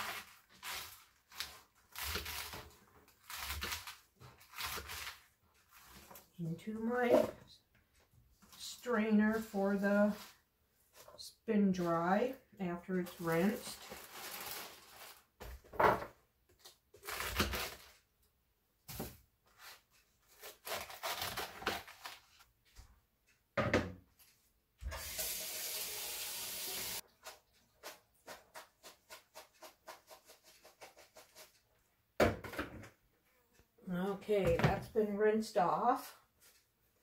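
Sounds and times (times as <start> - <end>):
kitchen tap running: 24.8 - 27.0.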